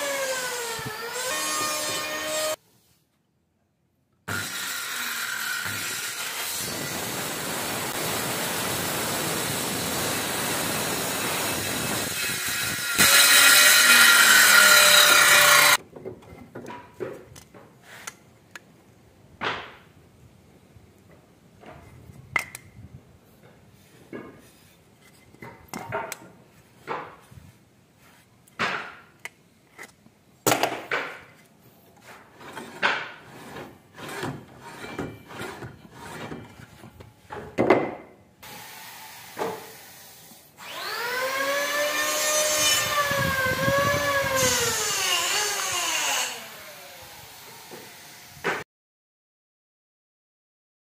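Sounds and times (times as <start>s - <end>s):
circular saw cutting wood: 0.0s - 2.6s, 4.3s - 15.8s, 32.4s - 36.4s, 38.4s - 48.6s.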